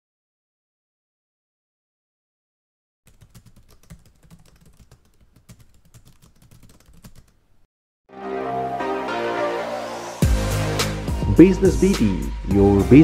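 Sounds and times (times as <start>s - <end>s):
rapid irregular clicking: 3.1s - 7.4s.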